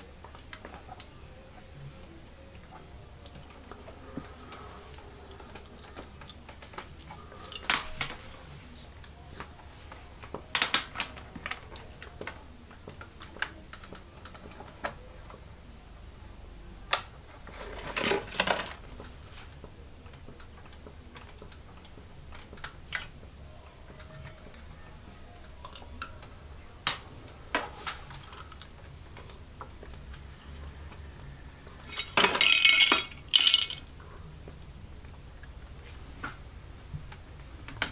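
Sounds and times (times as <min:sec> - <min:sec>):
plastic toy parts clicking: 0:10.5 - 0:15.0.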